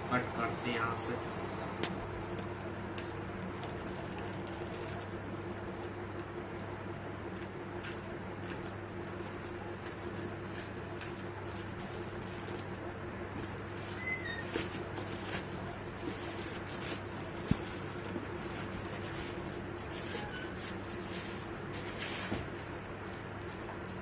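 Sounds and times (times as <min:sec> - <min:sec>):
plastic crinkling and rustling: 0:02.2 - 0:24.0
scissors snipping plastic bag: 0:02.3 - 0:05.2, 0:07.3 - 0:12.8, 0:13.4 - 0:24.0
plastic bag tearing: 0:03.0 - 0:05.2, 0:07.3 - 0:12.8, 0:13.4 - 0:24.0.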